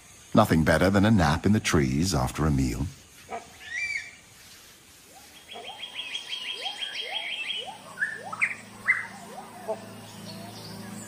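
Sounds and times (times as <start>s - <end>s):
sharp bird calls: 3.1s - 4.4s, 5.0s - 11.0s
bird rising whistled notes: 3.6s - 4.2s, 5.1s - 10.8s
bird fast trill: 5.1s - 11.0s.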